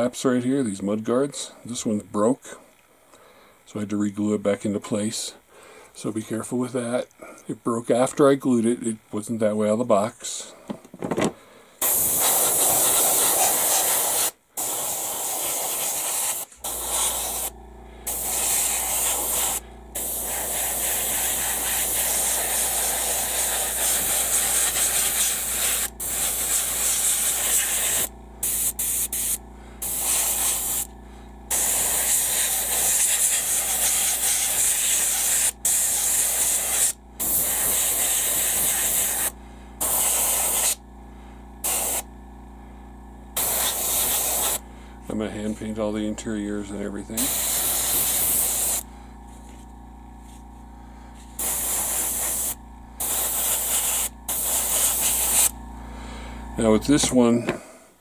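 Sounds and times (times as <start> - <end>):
airbrush spraying hiss: 11.8 - 30.9, 31.5 - 40.8, 41.6 - 42.1, 43.4 - 44.6, 47.2 - 48.9, 51.3 - 55.6
low steady hum: 16.4 - 58.0.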